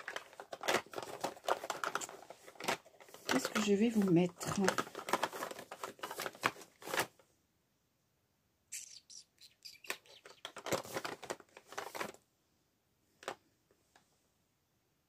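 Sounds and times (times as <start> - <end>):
plastic makeup cases clicking: 0.0 - 7.0, 9.8 - 12.2.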